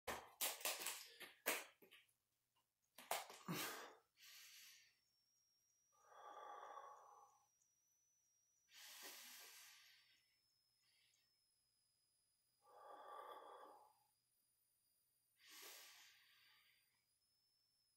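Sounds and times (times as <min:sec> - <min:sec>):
man breathing slowly: 0:03.4 - 0:05.1, 0:05.9 - 0:07.9, 0:08.6 - 0:11.4, 0:12.6 - 0:14.2, 0:15.4 - 0:17.2.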